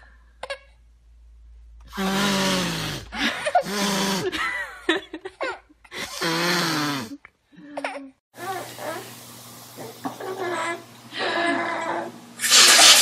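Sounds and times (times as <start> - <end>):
baby laughing: 10.0 - 12.1.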